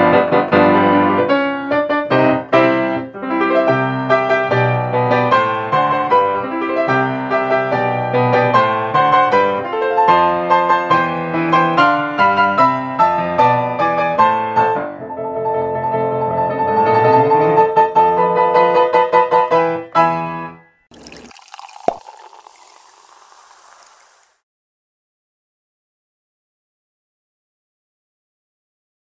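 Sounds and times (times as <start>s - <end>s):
grand piano played fast: 0.0s - 20.6s.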